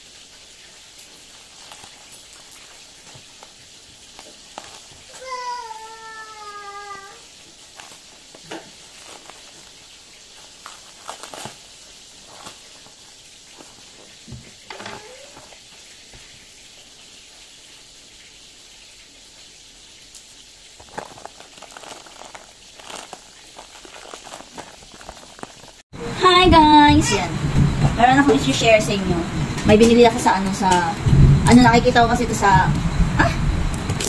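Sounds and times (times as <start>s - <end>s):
faint steady hiss: 0.0s - 26.7s
plastic bag crinkling: 1.0s - 15.8s, 20.7s - 25.8s.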